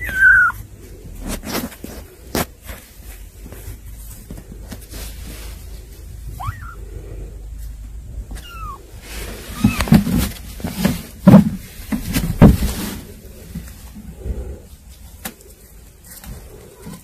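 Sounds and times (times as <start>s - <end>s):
kittens mewing: 0.0s - 0.7s, 6.2s - 7.5s, 8.2s - 10.0s
bumps and knocks among cardboard boxes: 8.2s - 14.0s.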